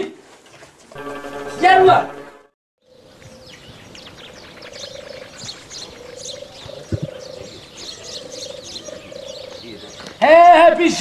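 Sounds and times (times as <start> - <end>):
small birds chirping: 2.8 - 10.2.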